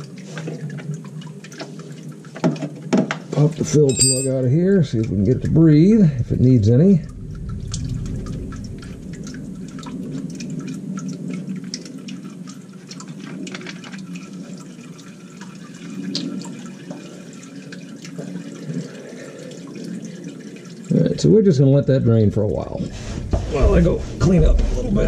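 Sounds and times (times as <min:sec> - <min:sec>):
fluid trickling into plastic tub: 0:00.0 - 0:03.8, 0:04.4 - 0:21.3
small drips: 0:00.0 - 0:25.0.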